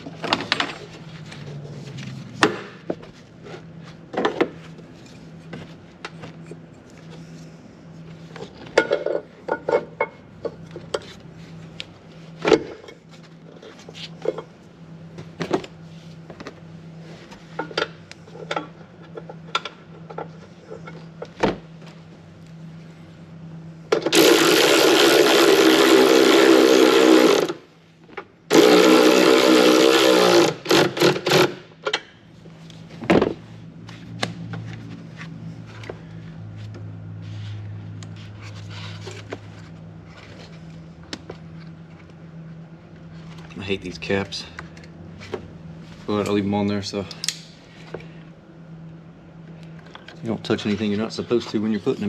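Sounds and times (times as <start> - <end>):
cordless power tool whirring: 24.0 - 27.6, 28.5 - 31.6.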